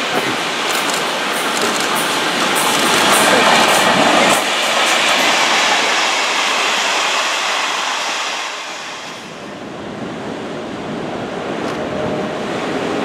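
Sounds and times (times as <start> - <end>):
train carriages rolling on rails: 0.0 - 9.5.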